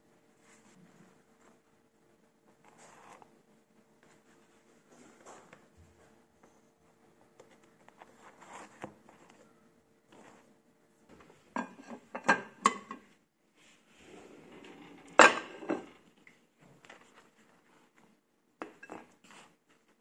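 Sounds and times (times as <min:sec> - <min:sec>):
soft handling of food: 0:04.0 - 0:12.2
ceramic plate set on countertop: 0:11.5 - 0:13.2, 0:14.6 - 0:16.0, 0:18.6 - 0:19.2
kitchen drawer opening with clacks: 0:14.0 - 0:16.1.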